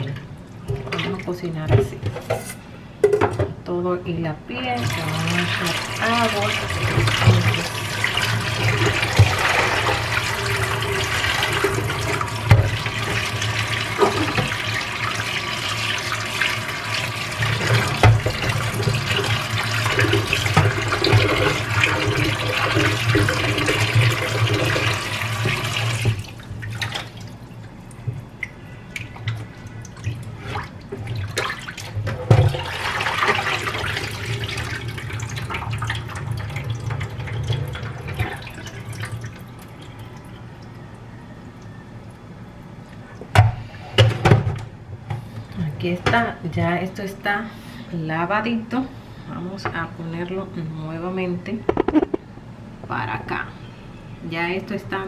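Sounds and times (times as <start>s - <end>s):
tap water splashing into a pan: 4.8s - 10.0s, 11.4s - 15.4s, 16.0s - 34.1s
water poured from pan: 4.8s - 27.2s
water dripping: 10.1s - 43.3s.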